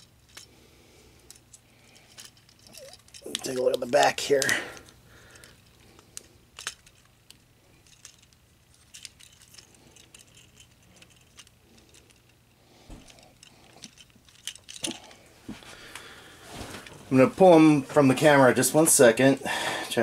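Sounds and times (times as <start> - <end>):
plastic toy parts clicking: 0.0 - 0.5, 1.3 - 12.4, 13.0 - 15.1.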